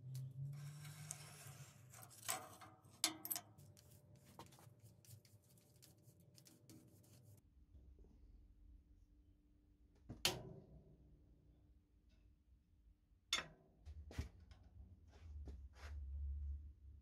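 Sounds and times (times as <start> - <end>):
metal clicks and scrapes: 0.0 - 6.7
bristle brush scratching metal rail: 0.4 - 7.4.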